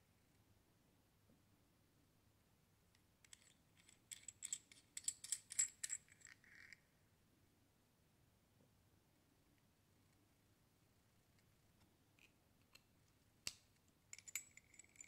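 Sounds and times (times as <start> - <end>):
metal parts clinking: 3.3 - 6.7, 14.2 - 15.0.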